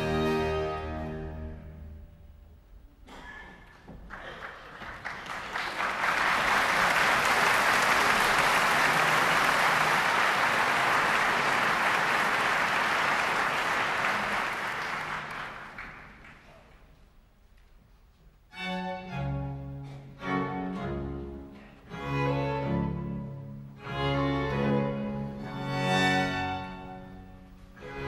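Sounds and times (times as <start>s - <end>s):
audience applauding: 3.7s - 16.8s.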